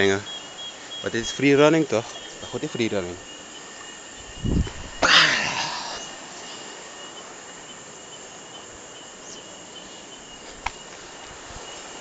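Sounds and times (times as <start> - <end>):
high insect buzz: 0.0 - 12.0
noise burst on microphone: 4.2 - 6.3.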